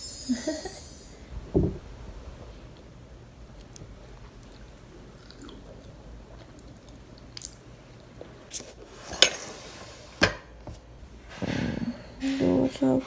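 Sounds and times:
quiet chewing: 3.6s - 8.6s.

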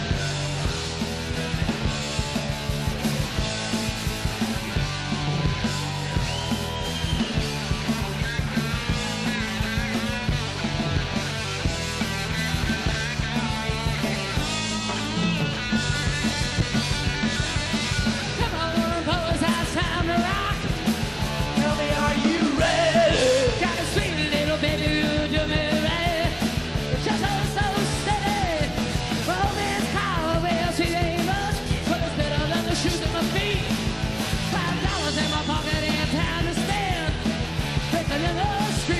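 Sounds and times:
distorted electric guitars: 0.0s - 38.9s
drums: 0.0s - 38.9s
person singing: 18.2s - 20.8s, 21.4s - 33.8s, 34.5s - 37.2s, 37.9s - 38.9s.

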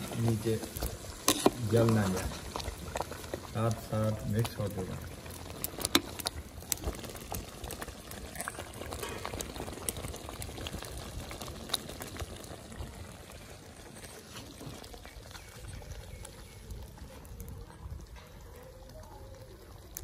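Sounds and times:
metal skimmer stirring: 0.0s - 13.0s
rice boiling and bubbling: 0.0s - 20.0s.

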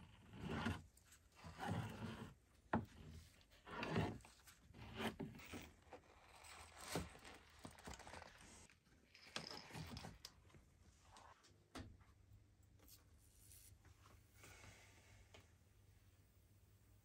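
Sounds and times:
small rustles: 5.4s - 11.6s.

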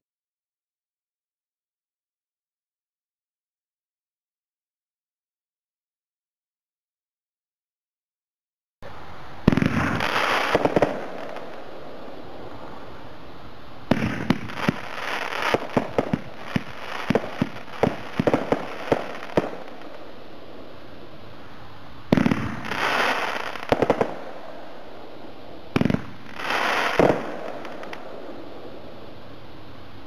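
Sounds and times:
firework launching thump and hiss: 9.4s - 11.7s, 13.8s - 20.0s, 22.1s - 24.4s, 25.7s - 28.4s
firework crackling pops: 9.4s - 29.4s
loud firework bang: 9.5s - 11.4s, 13.9s - 14.9s, 22.1s - 24.2s, 25.7s - 28.1s.

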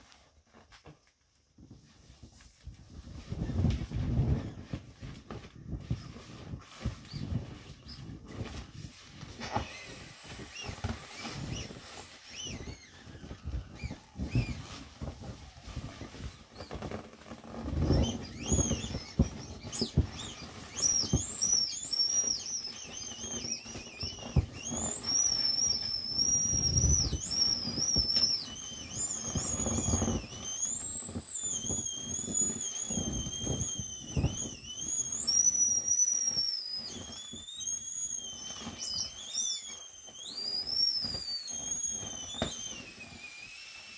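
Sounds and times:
vinyl rubbing and thumping: 1.6s - 35.6s
air whistling out of valve: 5.7s - 43.9s.

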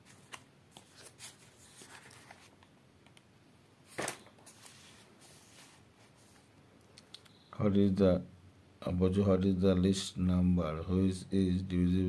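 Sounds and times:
paper page rustling: 0.0s - 2.7s, 3.9s - 6.5s.

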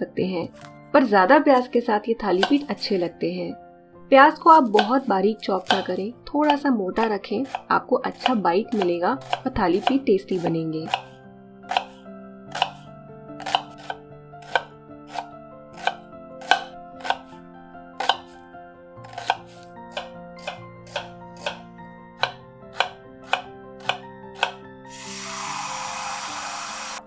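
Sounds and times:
soft background music: 0.0s - 27.0s
knife chopping onion on board: 2.3s - 3.0s, 4.3s - 17.3s, 18.0s - 18.4s, 19.0s - 24.6s.

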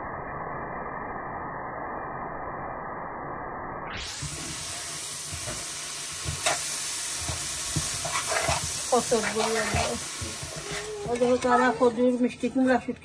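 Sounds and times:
food sizzling in a pan: 4.0s - 12.0s.

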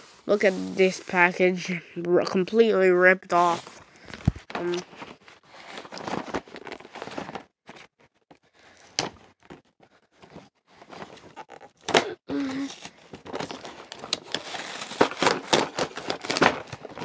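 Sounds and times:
packaging rustling and crinkling: 3.6s - 17.0s.

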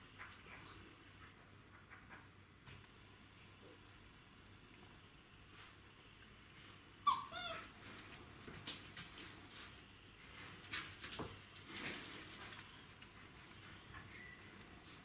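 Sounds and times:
puppy crying: 7.0s - 7.7s
faint clicks and rustles: 7.6s - 15.0s.

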